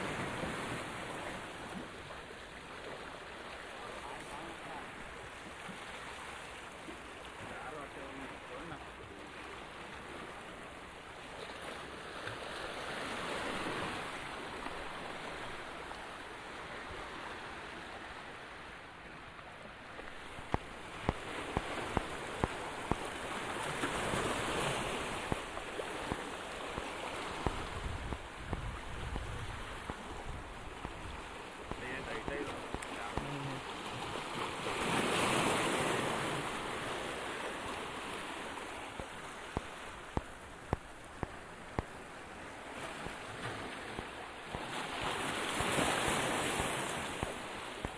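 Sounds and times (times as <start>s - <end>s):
waves splashing over rocks: 0.0s - 47.9s.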